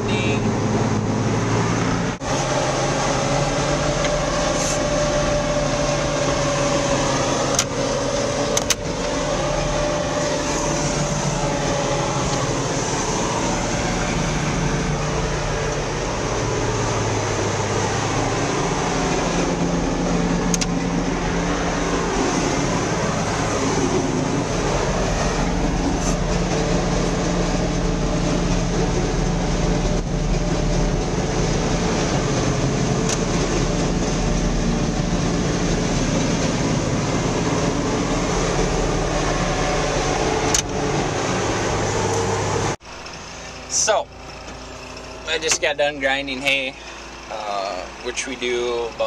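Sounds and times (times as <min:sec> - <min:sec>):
constant low hum: 0:00.0 - 0:49.0.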